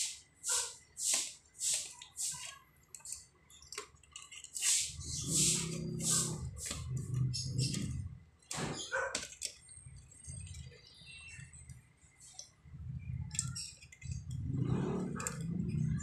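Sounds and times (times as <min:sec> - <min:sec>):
plastic parts clicking and rattling: 0:01.7 - 0:05.0, 0:06.6 - 0:16.0.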